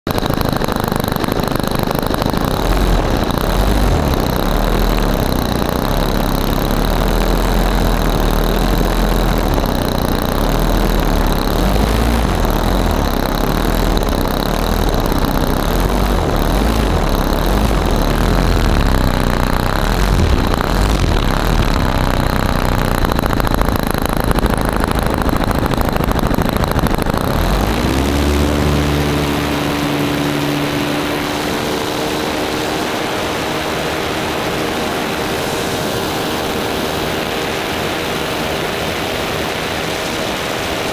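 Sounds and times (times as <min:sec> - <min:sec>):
model plane engine running: 0:00.0 - 0:40.9.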